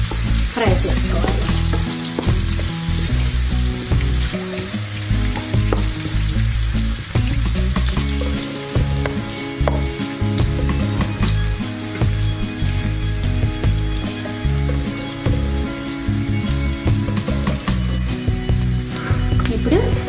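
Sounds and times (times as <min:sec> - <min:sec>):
onions sizzling in hot oil: 0:00.0 - 0:20.0.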